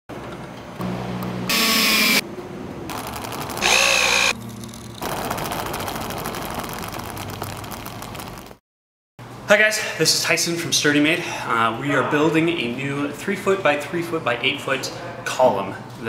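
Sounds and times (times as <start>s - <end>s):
power tool bursts: 1.5s - 2.2s, 3.6s - 5.7s
steady buzzing rattle: 2.9s - 8.0s.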